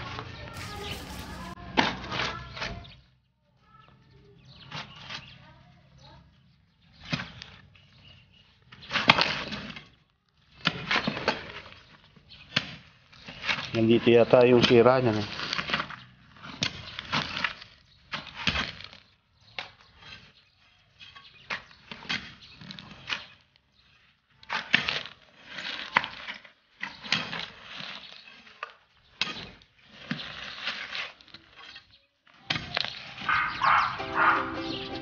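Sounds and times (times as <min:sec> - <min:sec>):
shovels digging gravelly soil: 0:00.5 - 0:02.4, 0:24.5 - 0:31.9.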